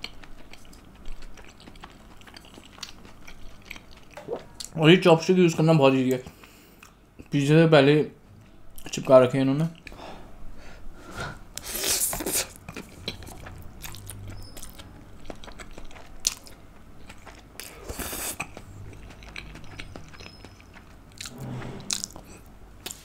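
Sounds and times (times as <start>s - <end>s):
small chewing clicks: 0.0s - 4.8s, 12.5s - 21.3s.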